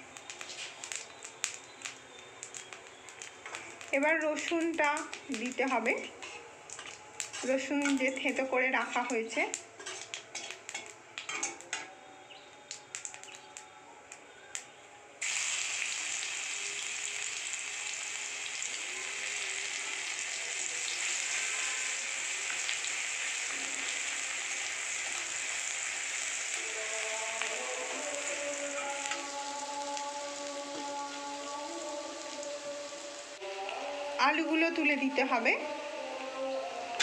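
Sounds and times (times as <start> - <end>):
garlic sizzling in hot oil: 0.0 - 11.4, 15.2 - 33.4.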